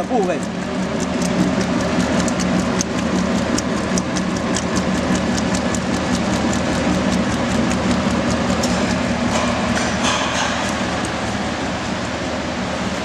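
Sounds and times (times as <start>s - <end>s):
mechanism clacking rhythmically: 0.0s - 13.0s
motor hum: 0.0s - 13.0s.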